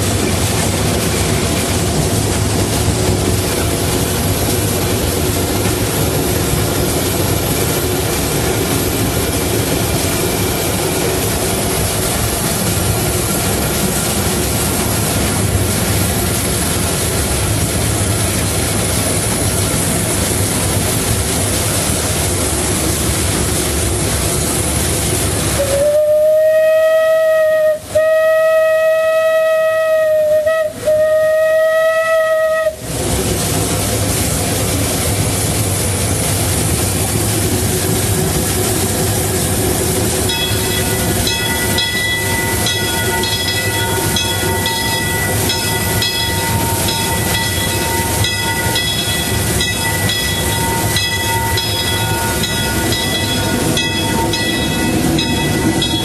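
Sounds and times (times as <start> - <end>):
steam locomotive running: 0.0 - 56.0
steam whistle blasts: 25.5 - 32.9.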